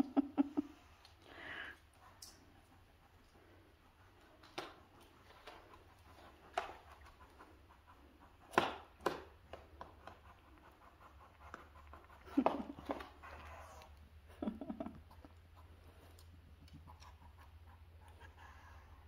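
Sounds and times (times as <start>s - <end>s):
dog sniffing: 1.5s - 14.0s.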